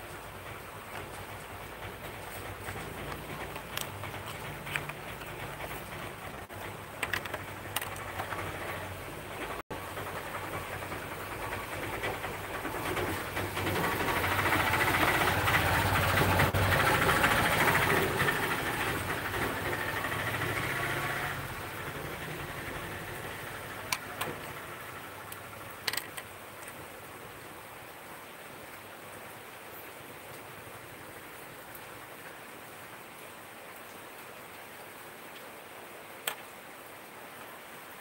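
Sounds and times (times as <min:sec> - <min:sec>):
rumbling noise: 0:00.0 - 0:25.9.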